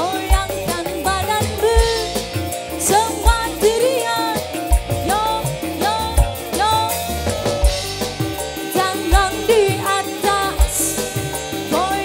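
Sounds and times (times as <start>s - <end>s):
melody of sliding bending notes: 0.0s - 12.0s
steady percussion beat: 0.0s - 12.0s
deep drum thump: 7.1s - 8.5s.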